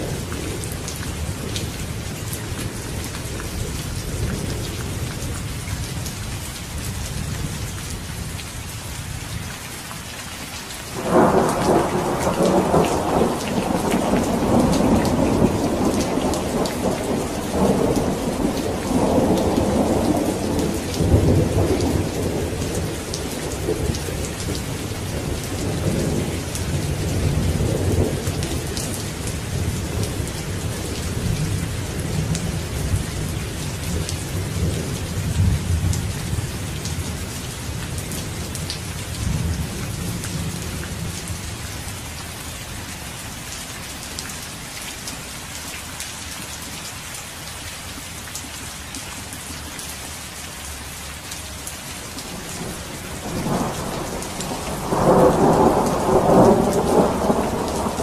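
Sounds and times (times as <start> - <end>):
heavy rain: 0.0 - 58.0
thunder rumbling: 11.0 - 41.4, 52.3 - 58.0.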